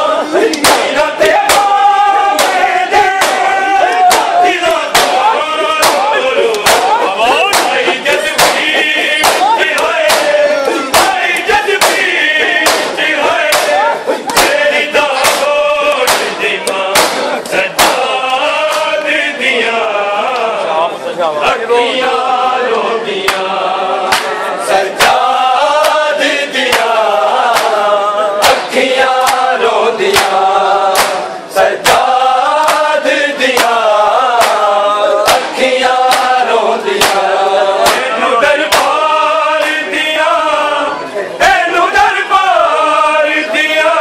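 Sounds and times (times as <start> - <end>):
men chanting a lament: 0.0 - 44.0
hands beating on chests: 0.5 - 18.9, 26.6 - 27.8, 28.4 - 29.5, 30.1 - 31.2, 31.8 - 32.9, 33.5 - 38.1, 38.7 - 39.0.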